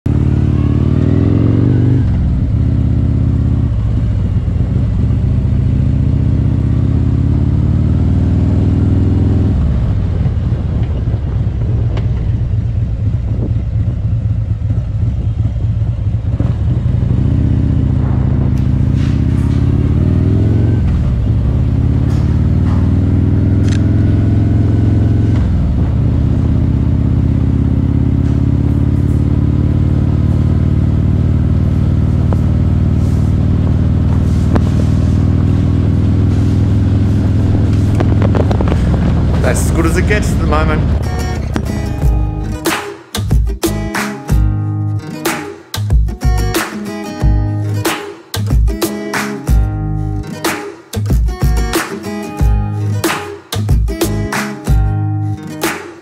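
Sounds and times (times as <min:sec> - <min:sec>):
motorcycle engine running: 0:00.0 - 0:44.8, 0:52.4 - 0:53.0.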